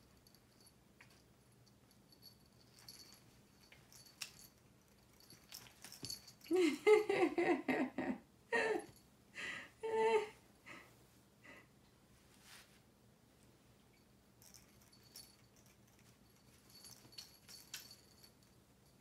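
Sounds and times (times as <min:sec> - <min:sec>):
faint light rattles: 0:00.0 - 0:07.0, 0:13.9 - 0:19.0.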